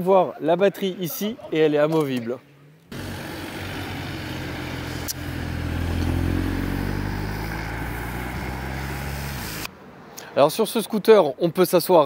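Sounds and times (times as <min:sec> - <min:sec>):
engine running low hum: 0:02.4 - 0:09.7.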